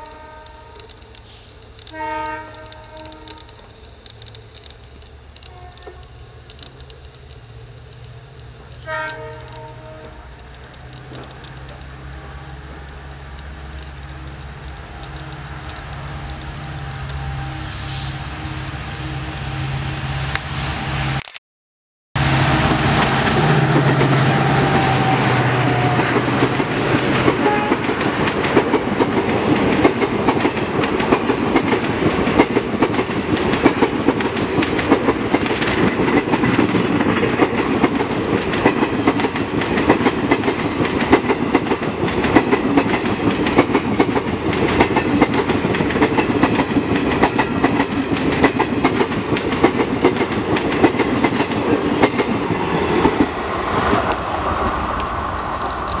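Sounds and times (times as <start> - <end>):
diesel locomotive engines droning: 0.0 - 21.2, 22.2 - 56.0
train wheels clickety-clack: 7.9 - 17.2, 22.9 - 56.0.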